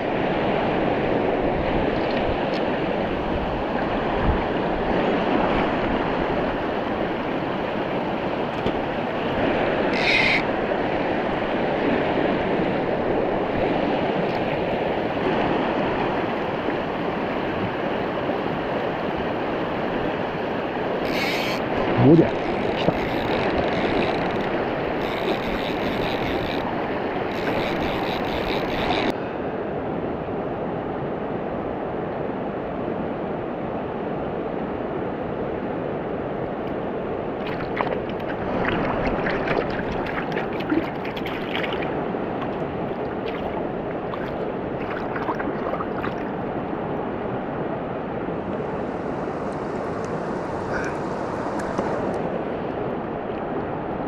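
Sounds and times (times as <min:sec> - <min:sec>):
splashes and knocks in water: 0:37.4 - 0:46.4.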